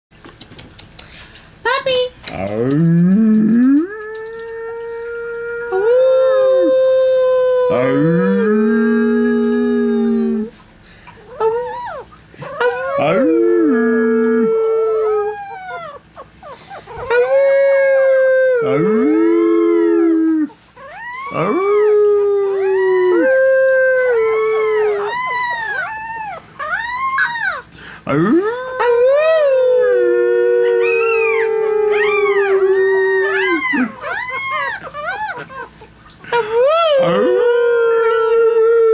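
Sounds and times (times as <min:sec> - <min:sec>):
puppy howling: 0:03.4 - 0:10.5, 0:11.2 - 0:38.9
people howling: 0:11.3 - 0:16.0, 0:17.0 - 0:38.9.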